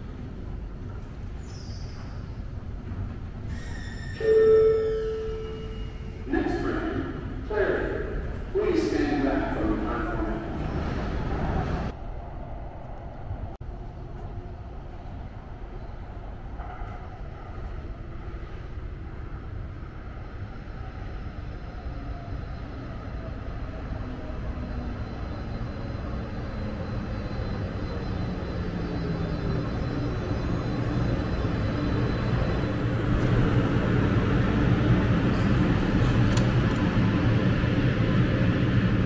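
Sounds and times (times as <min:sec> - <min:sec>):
light-rail train arriving: 0:00.0 - 0:39.0
train motor whine: 0:25.1 - 0:39.0.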